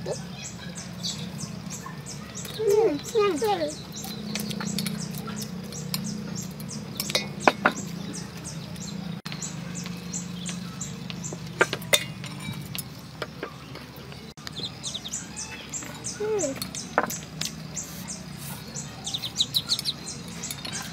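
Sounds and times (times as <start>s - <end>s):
chopsticks clicking against a bowl: 4.0s - 7.9s, 16.5s - 17.6s, 19.0s - 20.9s.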